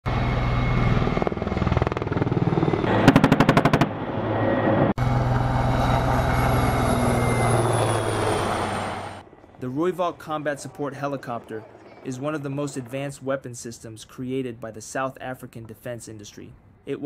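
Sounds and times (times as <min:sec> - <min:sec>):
helicopter rotor thrum: 0:00.1 - 0:13.2
high turbine whine: 0:00.1 - 0:14.1
rapid gunfire: 0:02.9 - 0:03.9.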